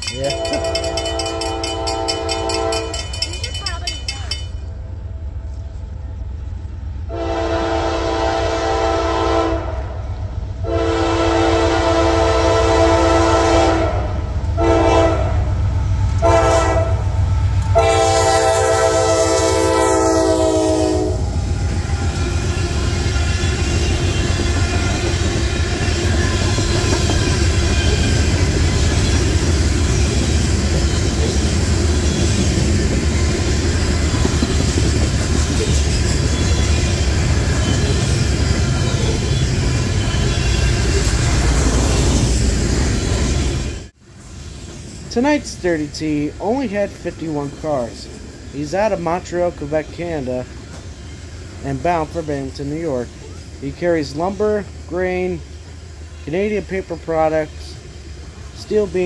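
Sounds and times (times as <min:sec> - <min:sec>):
locomotive horn blasts: 0:00.0 - 0:03.2, 0:07.1 - 0:10.0, 0:10.6 - 0:15.5, 0:16.2 - 0:21.3, 0:21.9 - 0:25.2, 0:38.9 - 0:41.0
freight cars clacking on rails: 0:00.0 - 0:04.7, 0:21.4 - 0:43.3
train engines rumbling: 0:00.0 - 0:59.0.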